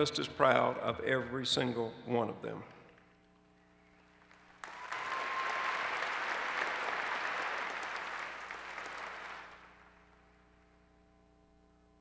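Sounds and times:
crowd applauding: 4.0 - 10.3.

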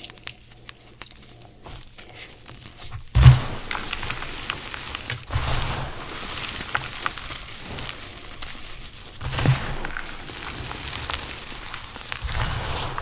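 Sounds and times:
hands crushing chalk chunks: 0.0 - 13.0
dull thumps: 2.9 - 4.1.

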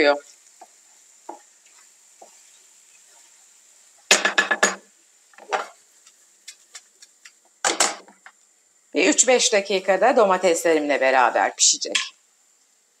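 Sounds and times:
faint sizzle: 0.0 - 13.0
wooden spatula scraping pan: 0.6 - 3.5.

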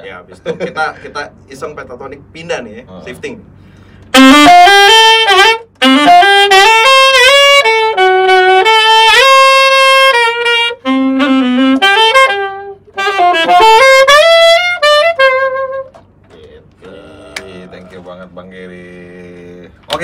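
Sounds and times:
saxophonist breaths: 3.5 - 4.1
alto saxophone jazz lick: 3.5 - 20.0.

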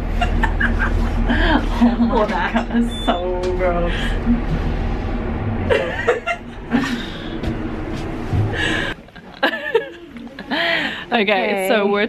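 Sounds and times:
women laughing: 0.0 - 3.2, 5.6 - 7.4, 8.6 - 10.9
steady low hum: 0.0 - 11.0.

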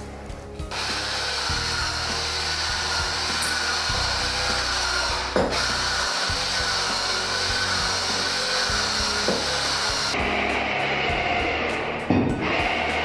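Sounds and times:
electric masher motor humming: 0.7 - 10.2.

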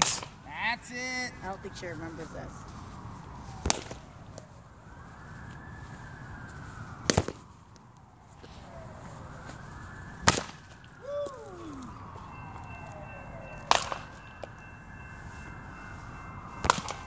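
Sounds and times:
bat hitting ball: 16.6 - 17.0.

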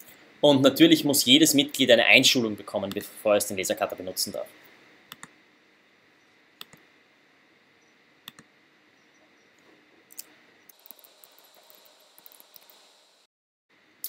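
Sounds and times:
computer mouse clicks: 5.1 - 5.4, 6.6 - 6.8, 8.3 - 8.5, 10.1 - 12.8.

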